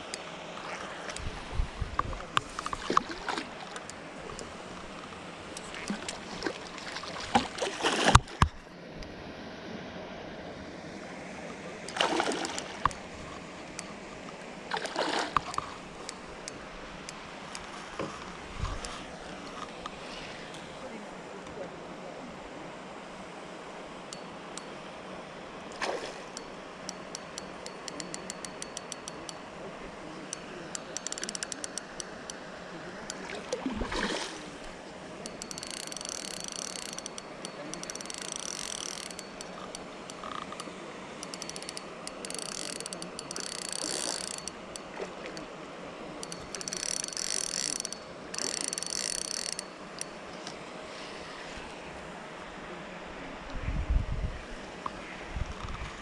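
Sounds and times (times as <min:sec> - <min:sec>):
fishing reel drag clicking: 0:02.4 - 0:08.5, 0:11.9 - 0:14.0, 0:14.7 - 0:17.7, 0:25.7 - 0:29.5, 0:30.2 - 0:32.4, 0:34.6 - 0:45.5, 0:46.2 - 0:50.6.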